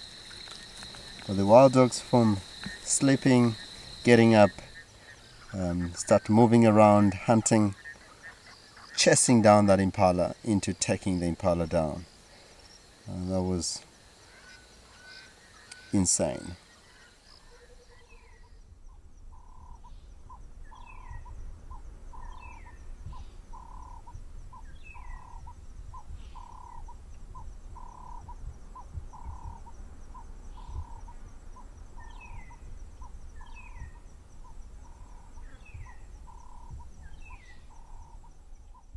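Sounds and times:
faint high insect trill: 0:00.0 - 0:38.9.

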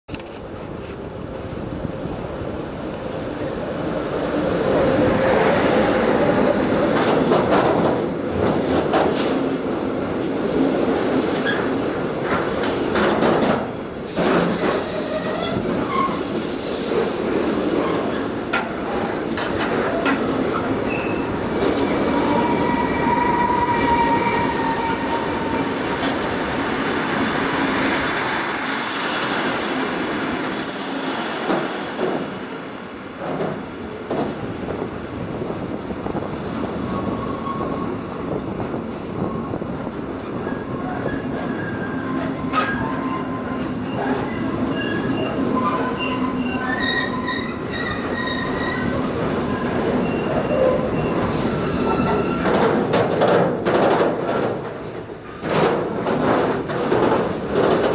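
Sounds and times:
train wheels rumbling on rail: 0:00.1 - 0:57.9
clicks over rail joints: 0:18.1 - 0:20.6, 0:52.0 - 0:57.9.

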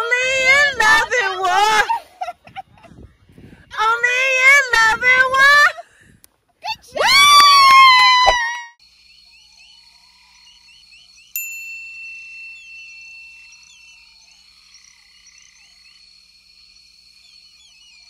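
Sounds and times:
birds chirping: 0:08.8 - 0:18.0
bell-like ding: 0:11.4 - 0:13.9.

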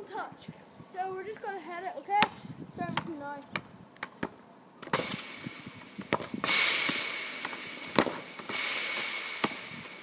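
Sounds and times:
loud crackling hiss: 0:05.0 - 0:10.0.

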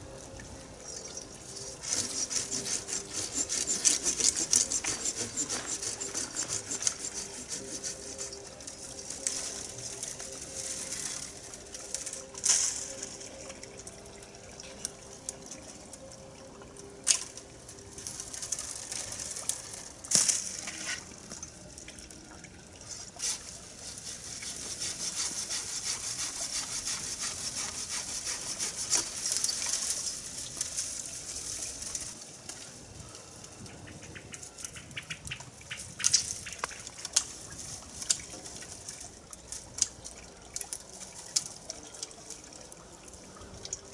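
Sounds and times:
scratchy rustling: 0:01.8 - 0:08.4, 0:23.2 - 0:32.1
branches snapping as cut: 0:20.1 - 0:21.0.

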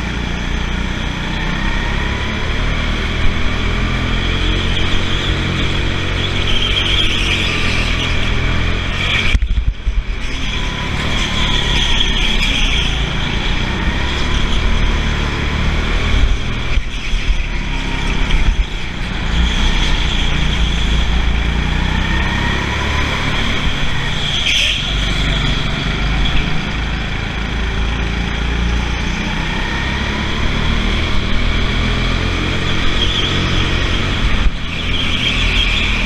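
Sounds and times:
go-kart motor running: 0:00.0 - 0:36.0
rumble and rushing noise: 0:00.0 - 0:36.0.

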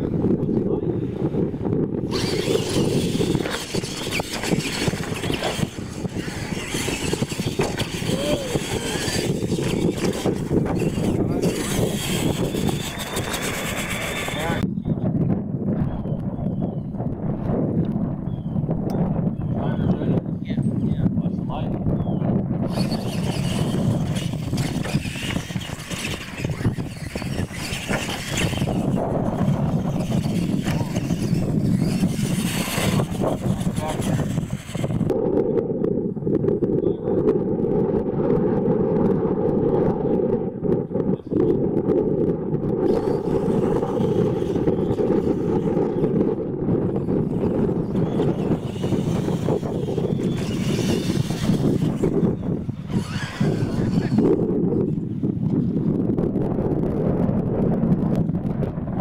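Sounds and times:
wind rumble on microphone: 0:00.0 - 0:59.0
electric toy truck motors whining: 0:02.0 - 0:14.6, 0:22.7 - 0:35.2, 0:42.8 - 0:55.0.

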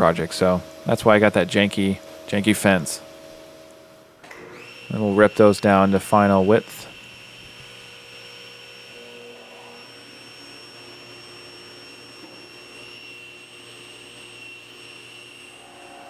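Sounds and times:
table saw whining: 0:03.7 - 0:16.0.

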